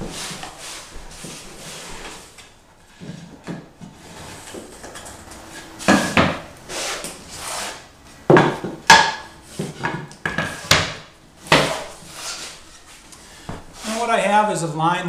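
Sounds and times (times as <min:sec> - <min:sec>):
wooden planks scraping: 0:00.0 - 0:14.4
wooden planks knocking: 0:08.3 - 0:11.9.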